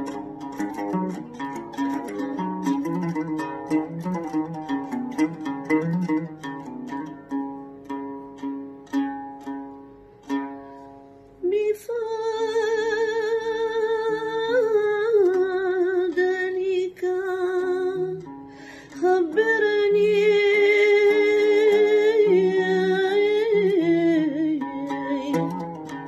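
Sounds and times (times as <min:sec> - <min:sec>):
woman singing with vibrato: 0:11.4 - 0:18.3, 0:19.0 - 0:25.8.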